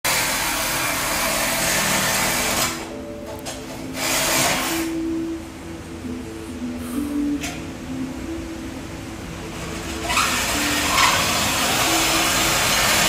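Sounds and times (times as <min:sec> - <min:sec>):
power tool whirring: 0:04.0 - 0:05.0, 0:09.6 - 0:13.0.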